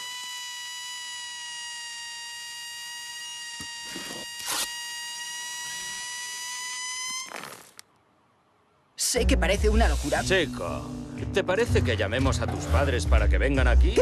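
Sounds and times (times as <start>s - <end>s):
squeaky rubbing: 0.0s - 7.8s.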